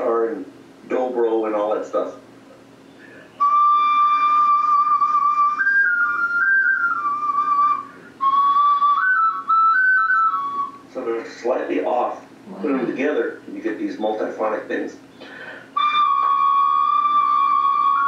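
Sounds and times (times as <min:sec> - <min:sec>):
double ocarina playing: 0:03.3 - 0:10.9, 0:15.7 - 0:18.0.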